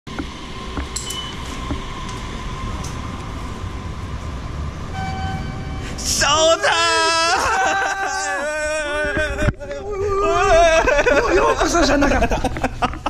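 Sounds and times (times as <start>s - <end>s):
steady electronic tone: 0.1s - 6.7s
faint hum: 0.1s - 13.0s
low rumble: 0.1s - 13.0s.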